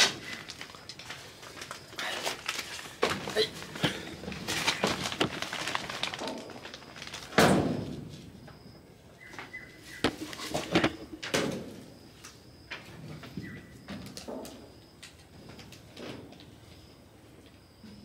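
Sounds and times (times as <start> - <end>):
loud thud: 7.4 - 8.0.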